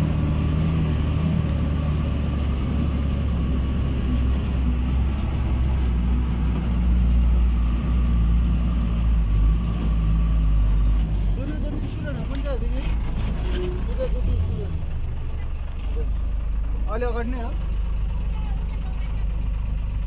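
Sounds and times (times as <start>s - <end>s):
low rumble on dirt road: 0.0s - 20.0s
vehicle engine drone: 0.0s - 20.0s.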